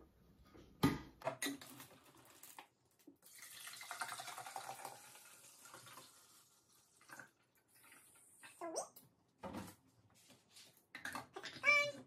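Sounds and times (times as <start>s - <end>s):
water pouring into plastic tank: 1.6s - 8.4s.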